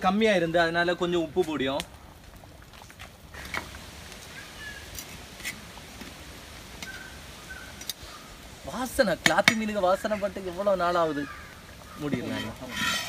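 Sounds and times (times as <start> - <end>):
metal ladle scraping a clay pot: 12.0 - 13.0.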